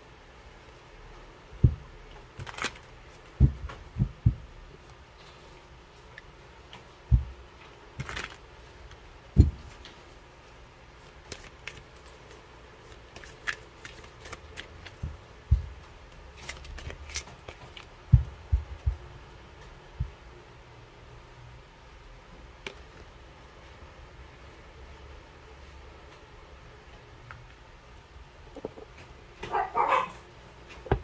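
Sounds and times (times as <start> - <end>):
cards clicking and rustling: 2.4 - 2.9, 8.0 - 8.4, 11.2 - 15.2, 16.3 - 17.9.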